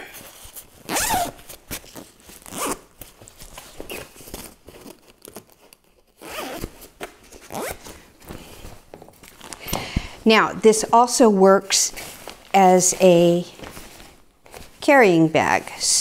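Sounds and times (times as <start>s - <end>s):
zipper on fabric carrier: 0.0s - 2.9s, 6.2s - 6.8s, 7.5s - 7.9s.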